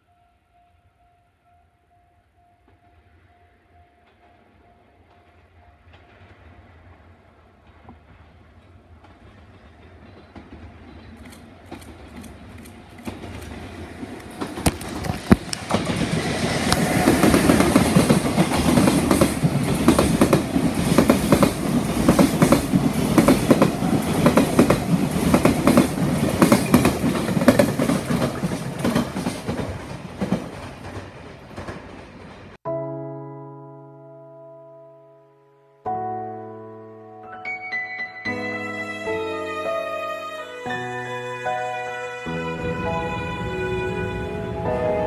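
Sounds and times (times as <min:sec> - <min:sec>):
freight train rumble: 0:03.1 - 0:32.6.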